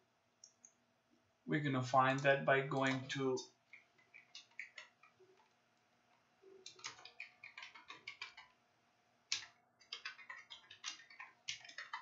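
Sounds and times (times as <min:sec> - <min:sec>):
faint keyboard typing: 0:02.1 - 0:08.6, 0:09.3 - 0:12.0.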